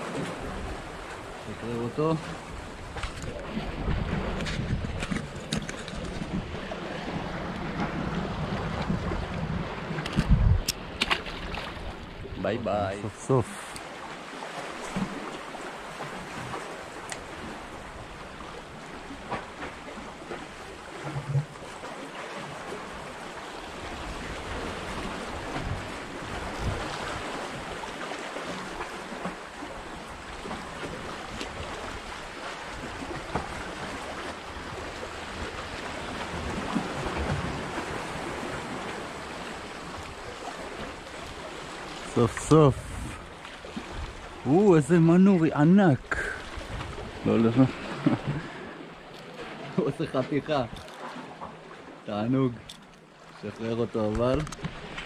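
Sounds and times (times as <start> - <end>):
waves slapping among concrete blocks: 0.0 - 55.0
wind on microphone: 2.4 - 12.6, 23.8 - 27.8, 42.0 - 44.6, 46.1 - 48.5.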